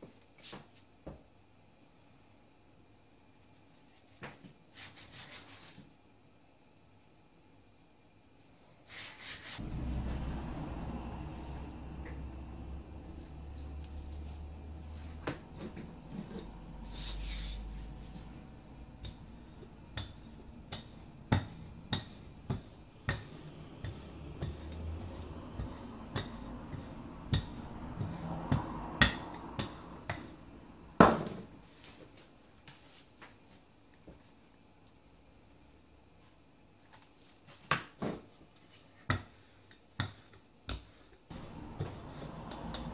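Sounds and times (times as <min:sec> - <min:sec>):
rolling pin knocking on dough: 0:19.9 - 0:30.3.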